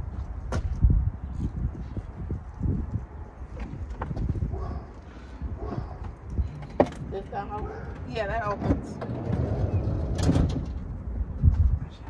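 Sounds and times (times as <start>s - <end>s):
footsteps on pavement: 0.0s - 8.4s.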